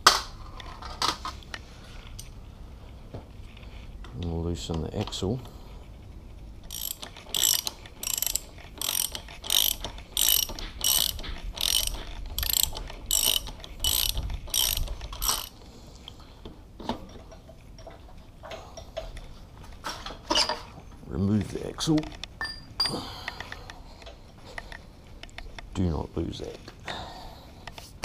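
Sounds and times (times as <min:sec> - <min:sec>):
socket ratchet clicking: 0:06.7 - 0:15.5.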